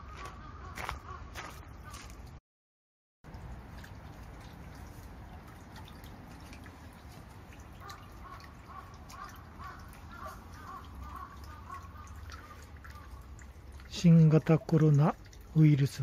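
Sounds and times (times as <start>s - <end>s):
water trickling into stone basin: 3.2s - 16.0s.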